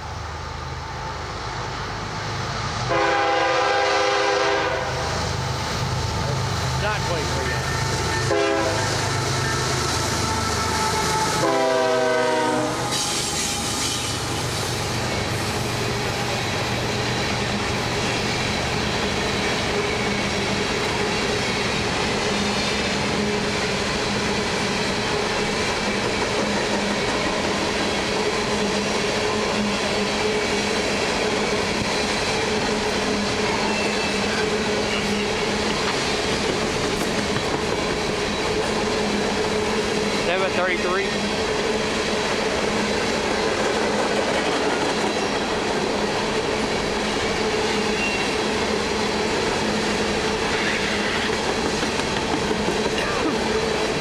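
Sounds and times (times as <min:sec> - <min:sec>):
locomotive horn blasts: 0:02.9 - 0:05.1, 0:07.5 - 0:13.0
freight cars rolling on rails: 0:03.2 - 0:54.0.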